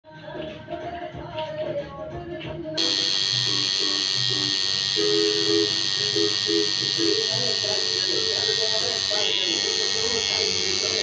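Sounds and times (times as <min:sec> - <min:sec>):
music: 0:00.0 - 0:11.0
tattoo machine buzzing: 0:02.8 - 0:11.0.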